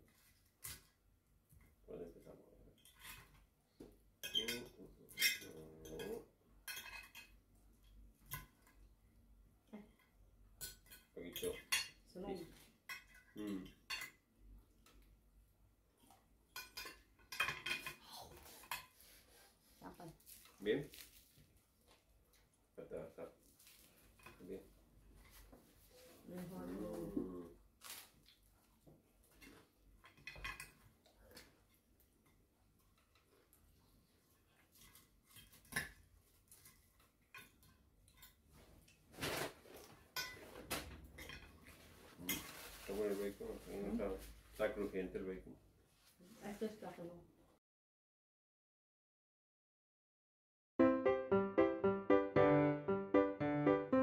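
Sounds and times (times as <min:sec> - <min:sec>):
cutlery clinking on plates: 0:04.2 - 0:07.4, 0:10.6 - 0:12.0, 0:12.8 - 0:14.2, 0:16.6 - 0:18.0, 0:29.4 - 0:30.8, 0:40.1 - 0:42.5.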